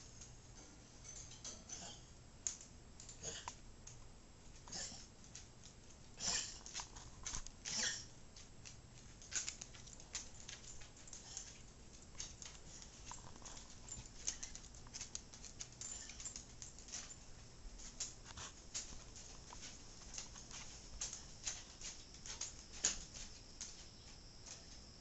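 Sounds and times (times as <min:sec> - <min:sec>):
dog claws tapping on hardwood floor: 0:05.2 - 0:24.8.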